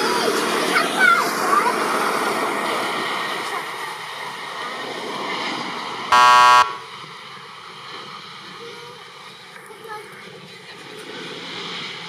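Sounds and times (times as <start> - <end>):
jet plane landing: 0.0 - 12.0
wrong answer buzzer: 6.1 - 6.8.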